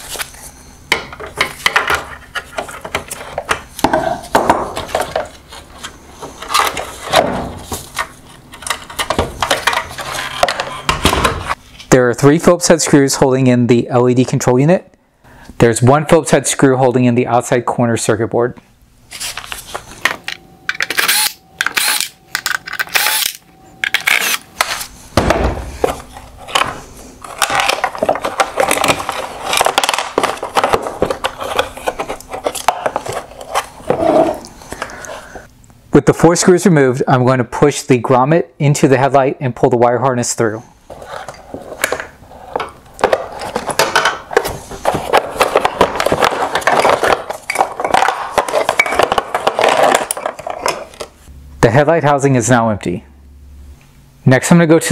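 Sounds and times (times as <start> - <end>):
plastic parts clicking and rattling: 25.9 - 33.7, 43.0 - 51.1.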